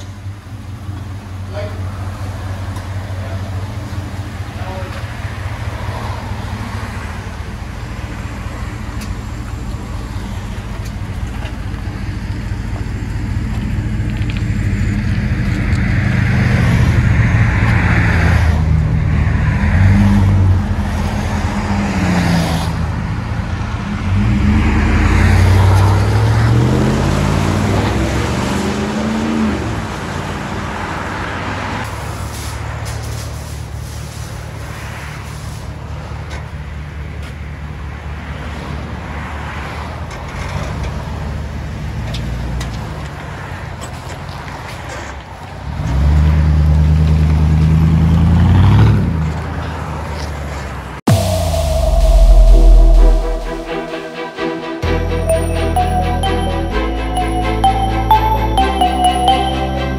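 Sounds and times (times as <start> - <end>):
car engine idling and revving: 0.0 - 32.0.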